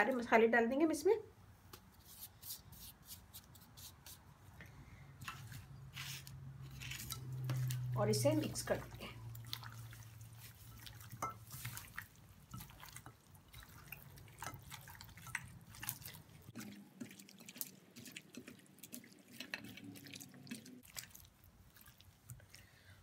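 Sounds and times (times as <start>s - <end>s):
wet squelches and clicks: 8.8s - 22.9s.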